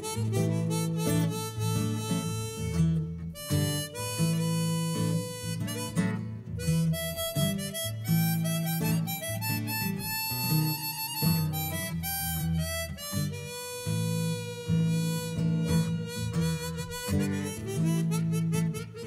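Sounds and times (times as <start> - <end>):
acoustic guitar accompaniment: 0.0 - 19.0
harmonica solo: 0.0 - 19.0.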